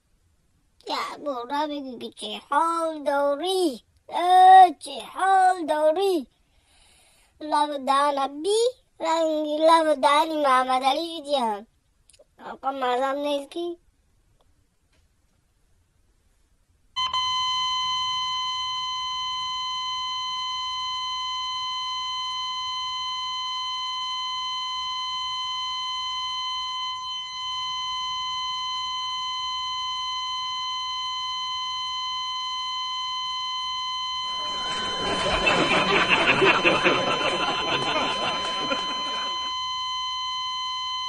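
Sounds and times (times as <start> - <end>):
high-pitched electronic beep tone: 17.0 - 41.0.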